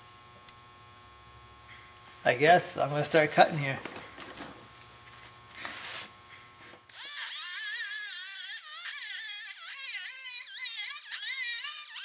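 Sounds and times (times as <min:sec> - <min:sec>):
pneumatic cutoff tool cutting steel: 0:06.9 - 0:12.0.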